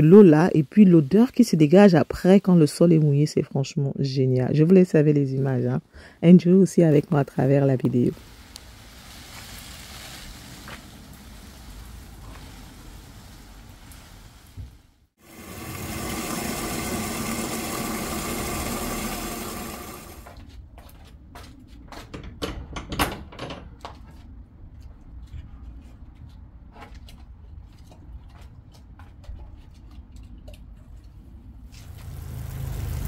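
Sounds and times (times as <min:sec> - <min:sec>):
water spraying: 0:06.9 - 0:20.3, 0:31.7 - 0:33.0.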